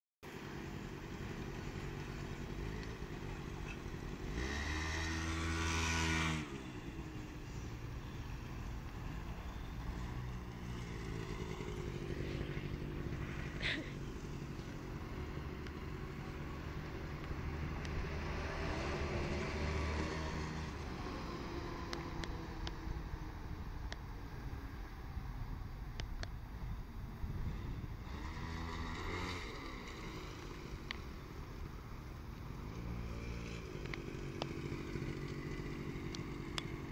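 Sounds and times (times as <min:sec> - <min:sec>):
scooter engine revving: 0:00.5 - 0:08.2, 0:09.0 - 0:22.3, 0:27.4 - 0:31.4, 0:32.5 - 0:36.9.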